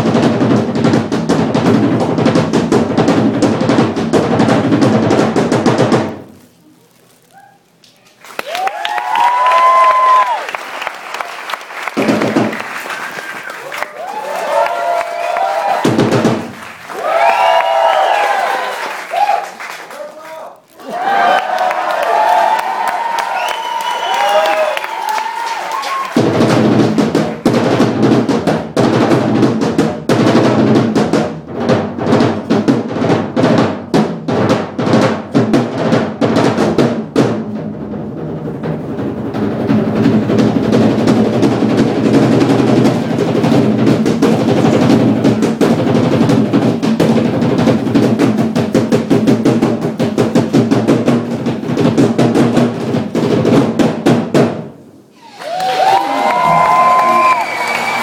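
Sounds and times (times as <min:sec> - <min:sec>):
fast dense drumming: 0:00.0 - 0:06.3, 0:11.8 - 0:12.9, 0:14.1 - 0:18.1, 0:25.9 - 0:54.8.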